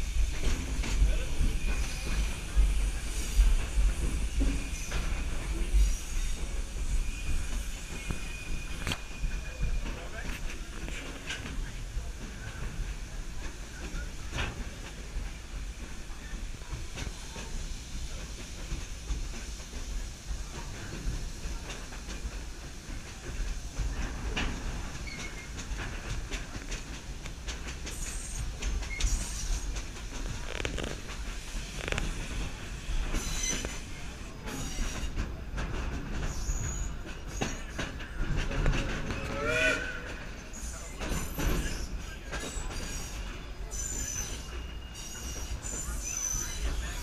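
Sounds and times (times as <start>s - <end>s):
train rumbling on track: 0.0s - 47.0s
wheel squeal: 25.0s - 25.6s, 27.9s - 29.7s, 31.7s - 33.9s, 36.2s - 37.8s, 39.4s - 47.0s.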